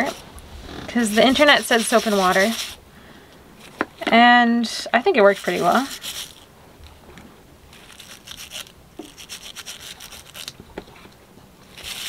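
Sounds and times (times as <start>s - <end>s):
scrub brush scrubbing: 0.0s - 0.2s, 0.9s - 2.8s, 5.1s - 6.5s, 7.8s - 10.5s, 11.7s - 12.0s.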